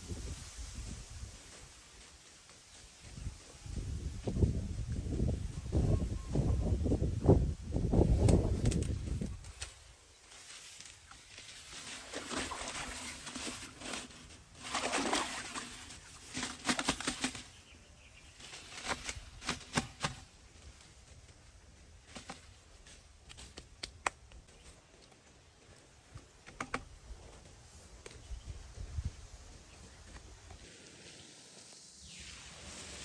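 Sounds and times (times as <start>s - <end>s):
leafy branches rustling: 7.2s - 23.9s.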